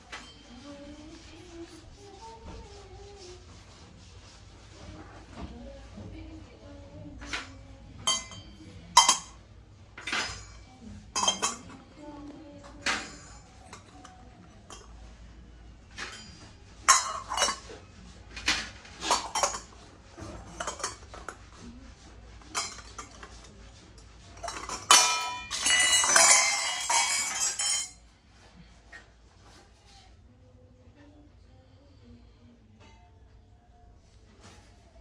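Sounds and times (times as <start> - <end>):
metal utensils clinking together: 8.0 - 9.4, 10.0 - 10.6, 11.2 - 11.7, 16.0 - 17.7, 19.0 - 19.7, 20.4 - 21.3, 22.5 - 23.3, 24.4 - 28.0.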